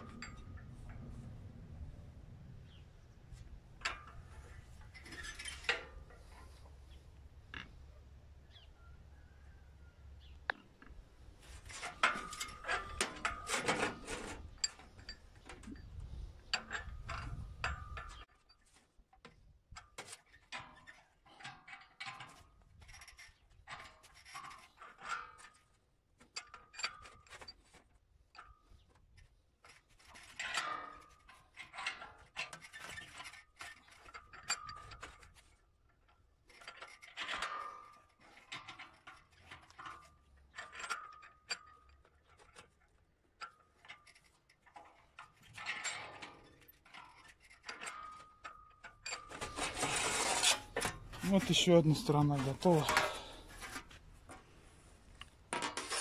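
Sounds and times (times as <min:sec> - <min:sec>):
metal scraping: 0:11.4 - 0:18.8, 0:36.5 - 0:56.0.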